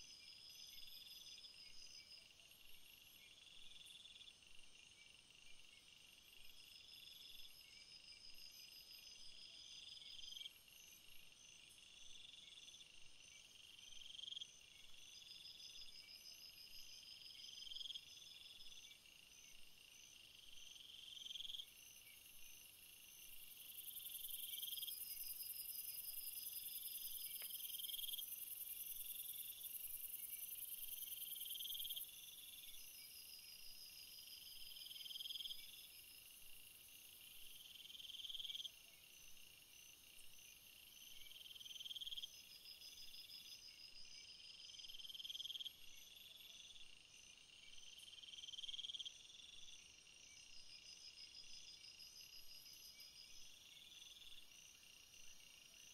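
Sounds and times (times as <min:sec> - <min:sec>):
insects chirping: 0:00.0 - 0:55.9.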